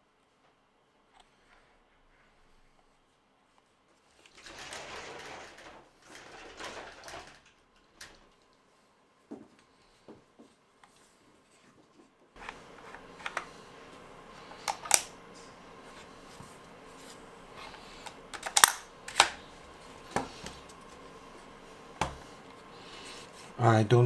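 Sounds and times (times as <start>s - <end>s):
room hiss: 12.4s - 24.0s
toy blaster mechanical clicks: 18.4s - 19.3s.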